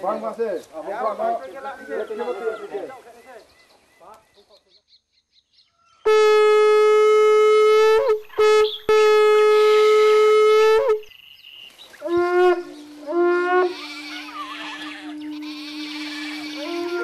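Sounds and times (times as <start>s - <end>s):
horn trumpet blasts: 6.1s - 11.1s, 12.0s - 17.0s
lower horn calls: 6.1s - 11.1s, 12.0s - 17.0s.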